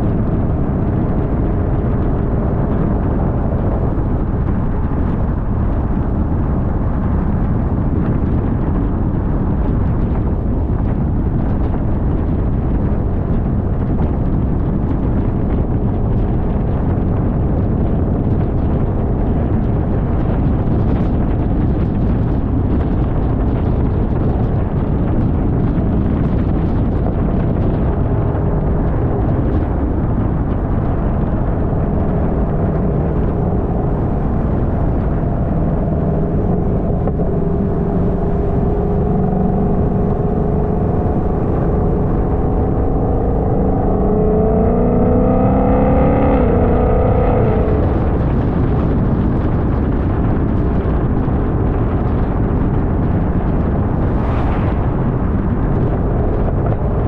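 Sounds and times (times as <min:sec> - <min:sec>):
road and wind noise: 0:00.0 - 0:57.0
car engine accelerating: 0:27.1 - 0:50.1.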